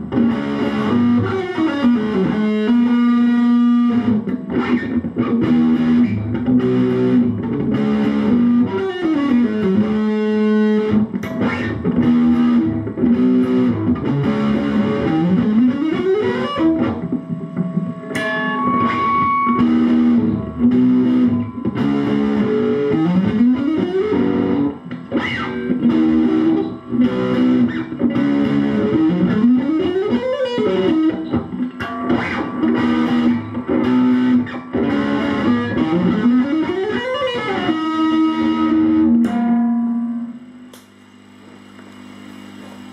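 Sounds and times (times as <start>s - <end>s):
distorted electric guitar riff: 0.0s - 42.9s.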